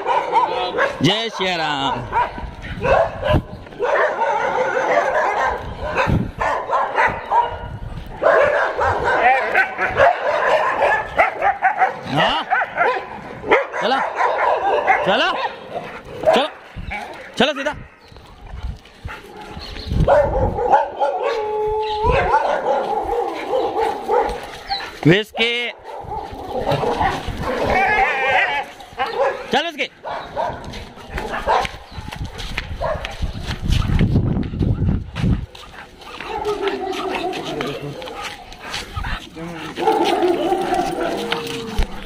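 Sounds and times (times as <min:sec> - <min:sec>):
dogs barking and yelping: 0:00.0 - 0:42.0
dog howling and whining: 0:20.8 - 0:23.8, 0:36.2 - 0:38.2, 0:39.3 - 0:42.0.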